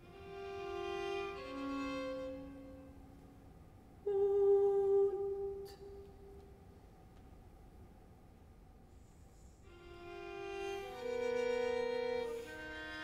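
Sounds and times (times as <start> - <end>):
string quartet: 0.0 - 3.0, 9.7 - 13.0
soprano singing: 4.0 - 6.5.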